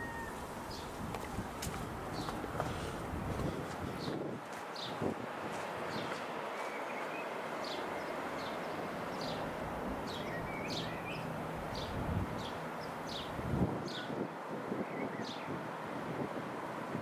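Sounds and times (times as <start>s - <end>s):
small birds chirping: 0.0s - 5.0s, 5.7s - 14.2s.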